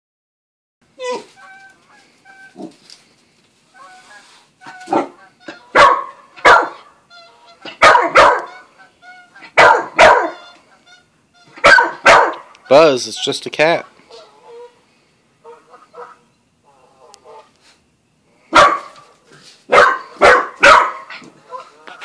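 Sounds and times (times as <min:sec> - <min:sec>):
puppy barking: 0:04.6 - 0:06.9, 0:07.6 - 0:08.7, 0:09.4 - 0:10.5, 0:11.5 - 0:12.5, 0:18.5 - 0:19.1, 0:19.7 - 0:21.8.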